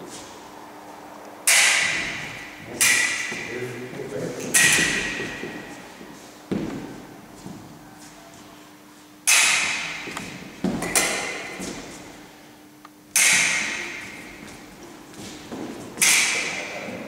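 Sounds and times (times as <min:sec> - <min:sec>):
foil blades clashing: 0:04.5 - 0:05.9, 0:09.3 - 0:12.1, 0:13.1 - 0:17.0
feet stamping on wooden floor: 0:05.1 - 0:08.6, 0:10.0 - 0:10.9, 0:11.5 - 0:12.1, 0:13.9 - 0:16.0.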